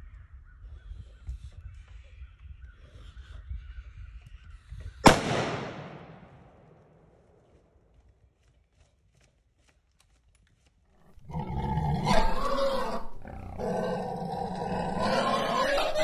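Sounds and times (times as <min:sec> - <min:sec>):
deep animal growl: 0:11.1 - 0:16.0.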